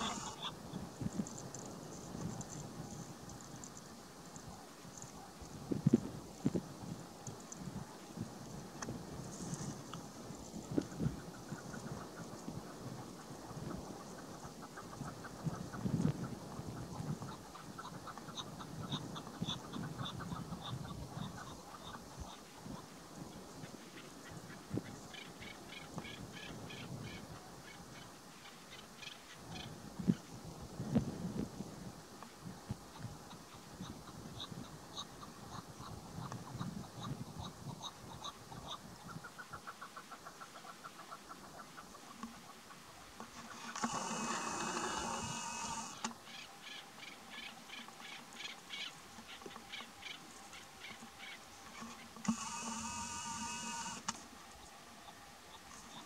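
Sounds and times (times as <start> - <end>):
partridge chuck calls: 0.0 - 1.3, 10.8 - 30.3, 32.9 - 54.1.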